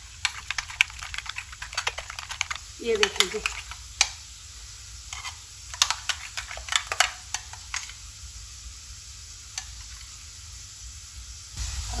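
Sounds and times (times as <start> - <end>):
spoon stirring thick dip: 0.0 - 4.2, 5.1 - 8.0.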